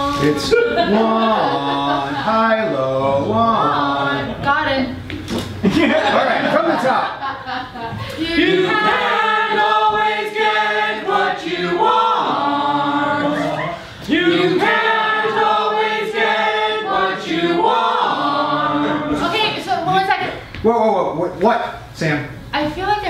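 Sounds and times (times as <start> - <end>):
mixed choir singing: 0.0 - 4.6, 8.2 - 19.8.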